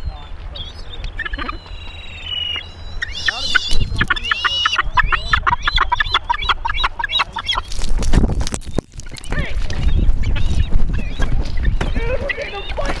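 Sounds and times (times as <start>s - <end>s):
gulls calling harshly: 0.0s - 13.0s
wind rumble on microphone: 3.3s - 6.6s, 7.5s - 13.0s.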